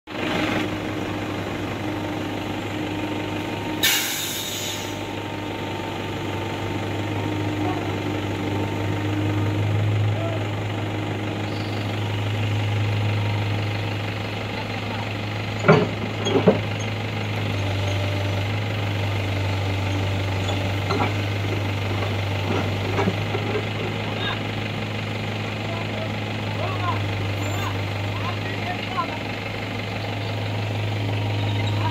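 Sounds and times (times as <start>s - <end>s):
diesel engine droning: 0.1s - 31.9s
short loud hiss: 3.8s - 5.0s.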